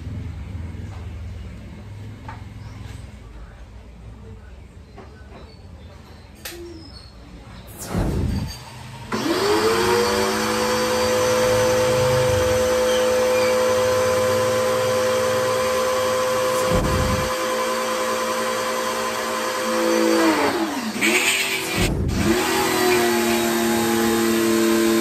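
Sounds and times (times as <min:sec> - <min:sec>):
pressure washer motor whine: 0:07.7 - 0:25.0.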